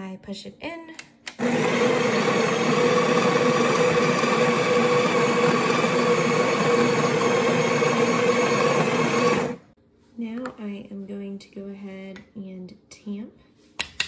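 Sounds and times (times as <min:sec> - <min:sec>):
coffee grinder whirring: 0:01.3 - 0:09.7.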